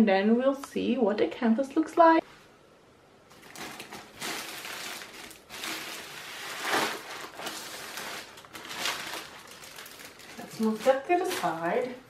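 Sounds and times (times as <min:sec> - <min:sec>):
plastic bag crinkling: 0:03.3 - 0:12.0.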